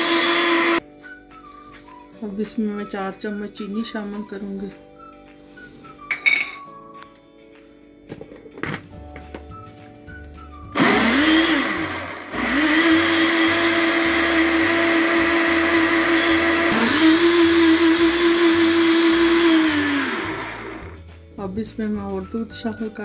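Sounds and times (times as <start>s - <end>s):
blender motor whining: 0.0s - 0.8s, 10.7s - 21.0s.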